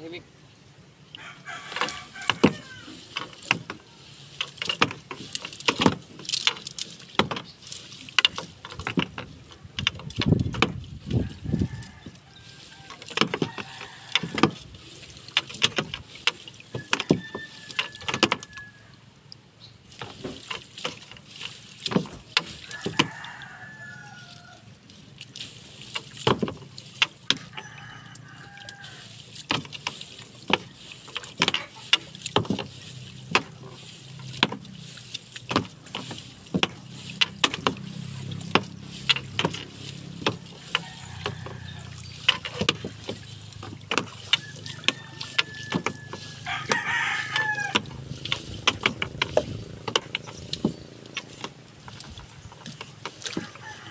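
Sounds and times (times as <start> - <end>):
rooster crowing: 1.1 - 3.1, 11.1 - 14.6, 16.8 - 19.0, 22.6 - 24.7, 27.4 - 29.2, 40.5 - 42.1, 44.2 - 48.1, 53.3 - 53.9
fishing net knocking on wooden boat: 29.5 - 34.7, 35.4 - 52.0.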